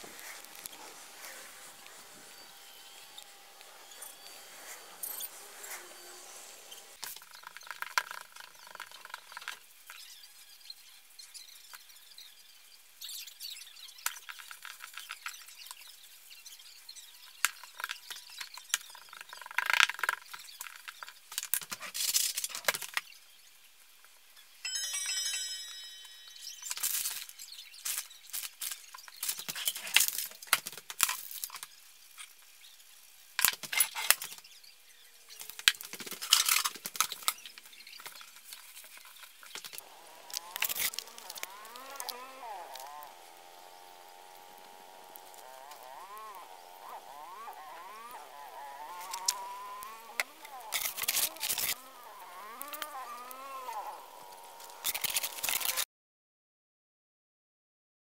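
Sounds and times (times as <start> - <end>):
hands working pizza dough: 0.0 - 7.0
brief pitched tone: 24.6 - 26.9.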